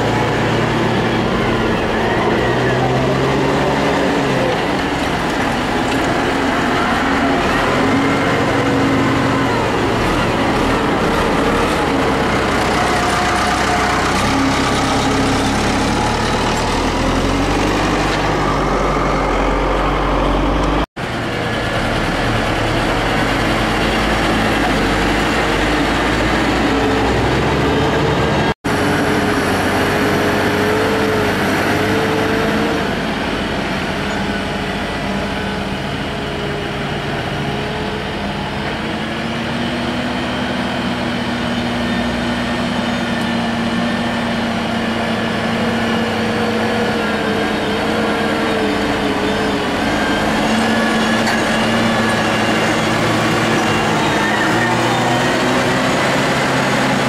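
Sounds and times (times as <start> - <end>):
diesel tractor engines working: 0.0 - 57.0.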